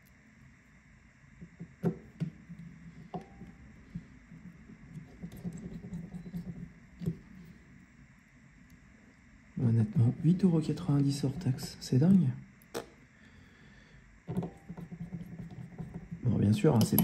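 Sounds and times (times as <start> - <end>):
small tools clicking and tapping: 16.8 - 17.0.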